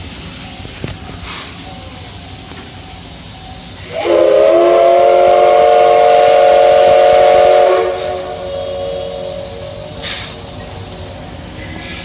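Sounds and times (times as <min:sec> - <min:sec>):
steam hissing: 0:00.0 - 0:12.0
steam whistle blast: 0:03.8 - 0:10.4.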